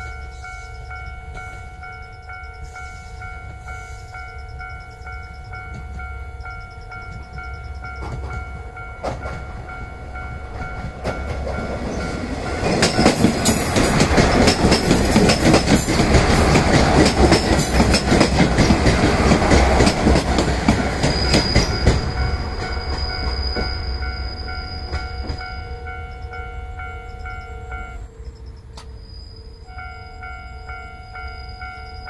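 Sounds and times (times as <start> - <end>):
crossing alarm bell ringing: 0.0 - 32.0
diesel railcar engine: 0.0 - 32.0
wheels clacking over rail joints: 5.1 - 26.2.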